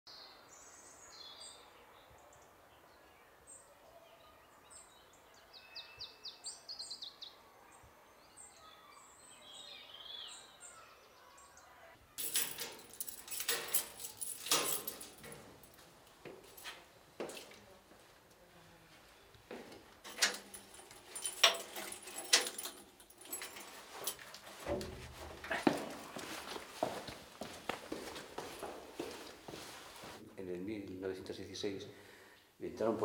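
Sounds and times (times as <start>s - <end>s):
small birds chirping: 0.1s - 15.3s.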